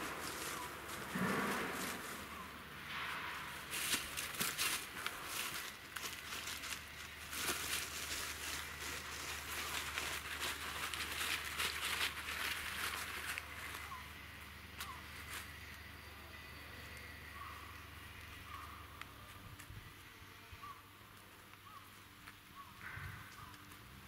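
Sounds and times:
dry leaves crunching underfoot: 0:00.0 - 0:15.9.

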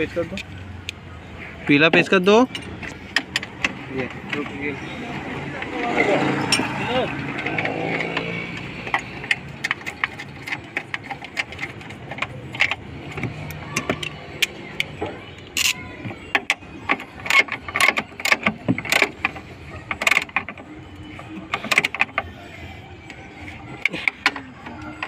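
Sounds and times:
ratchet wrench ratcheting: 0:06.4 - 0:22.3.

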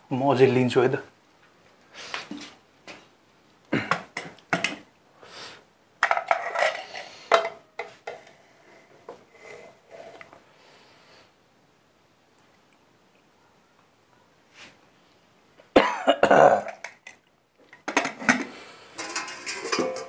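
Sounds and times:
metal spoon scraping a pot: 0:06.2 - 0:10.4, 0:19.0 - 0:20.0.

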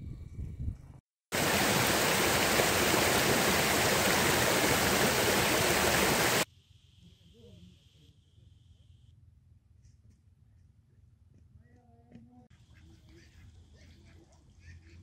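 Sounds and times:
water rushing over rocks: 0:01.3 - 0:06.4.

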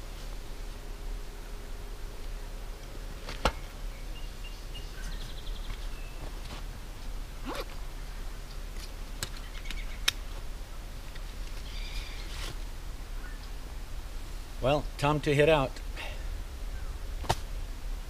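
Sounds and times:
zipper stroke: 0:07.4 - 0:07.8
faint bird chirps: 0:11.6 - 0:12.4.

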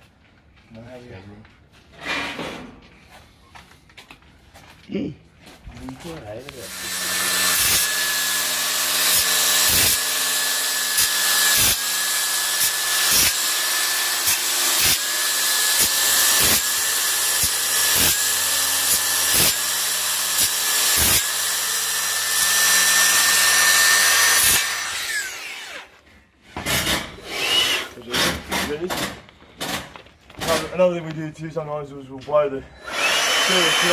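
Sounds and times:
circular saw cutting concrete: 0:06.5 - 0:26.0, 0:32.8 - 0:33.9
saw winding down: 0:06.6 - 0:26.0, 0:27.2 - 0:28.4, 0:32.8 - 0:33.9.

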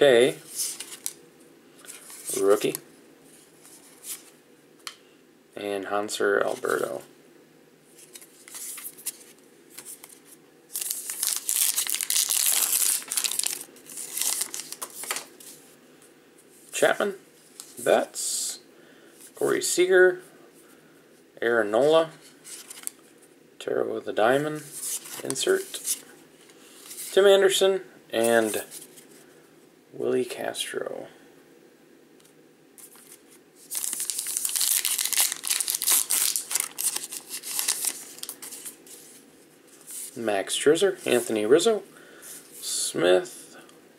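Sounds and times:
wrapper tearing and crinkling: 0:10.7 - 0:15.3, 0:32.8 - 0:38.8.

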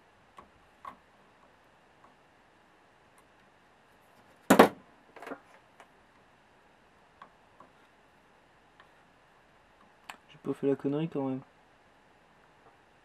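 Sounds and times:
sharp knock on workbench: 0:04.5 - 0:04.8.

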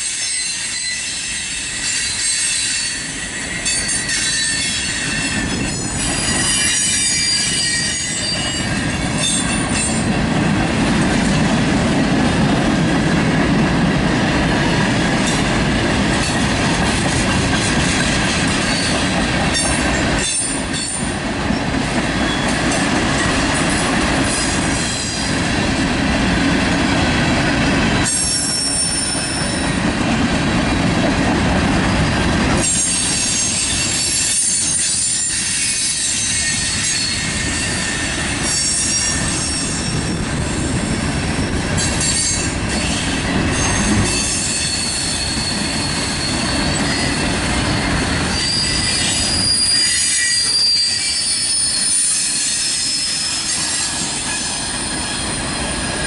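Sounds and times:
train wheel squeals: 0:00.0 - 0:10.2, 0:17.2 - 0:25.5, 0:28.0 - 0:30.0, 0:31.9 - 0:56.0
freight train rumbling past: 0:00.0 - 0:56.0.

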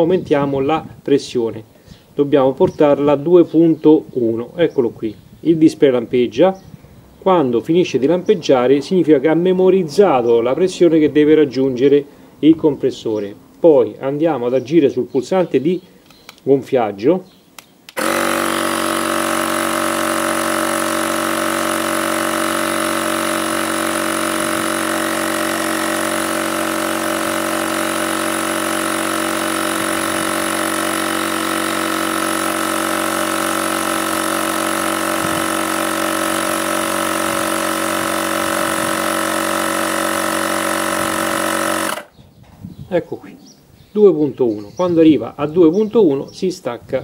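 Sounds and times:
tyre inflator compressor running: 0:17.9 - 0:42.2.

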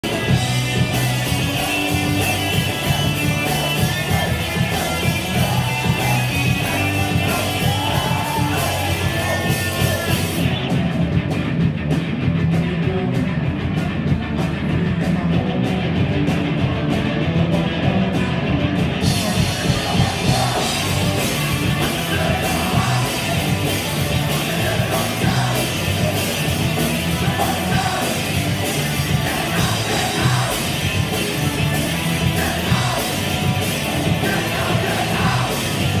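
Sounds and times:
bass guitar: 0:00.0 - 0:36.0
drum kit: 0:00.0 - 0:36.0
electric guitars: 0:00.0 - 0:36.0
person shouting and singing: 0:01.3 - 0:10.7, 0:19.1 - 0:36.0.

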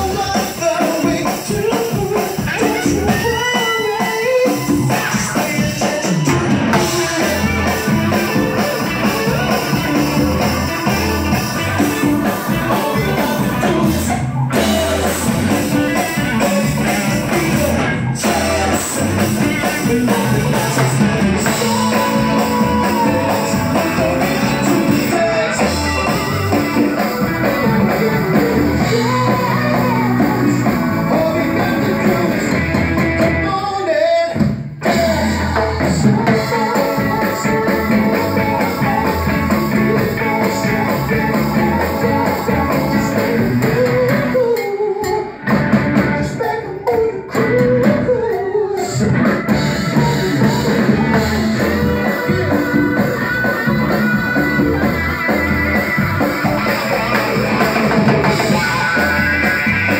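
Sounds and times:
man singing lead vocal: 0:00.0 - 0:54.2, 0:54.8 - 0:59.9
live band playing: 0:00.0 - 0:59.9.

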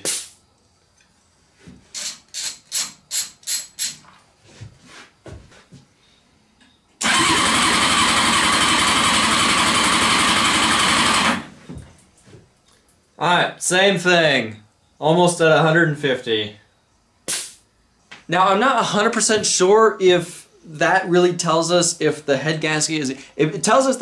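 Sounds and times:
starter motor cranking engine: 0:07.0 - 0:11.5.

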